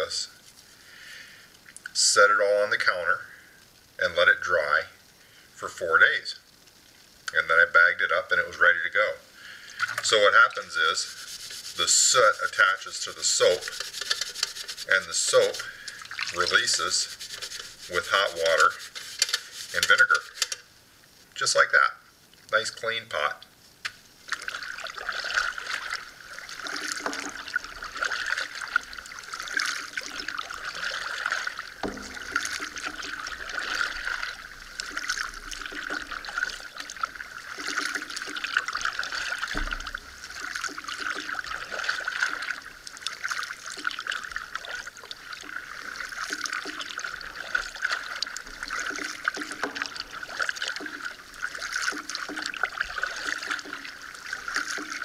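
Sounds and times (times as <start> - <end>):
paddle splashing water: 8.4 - 20.7, 24.0 - 55.0
water dripping off blades: 9.4 - 20.7, 23.8 - 55.0.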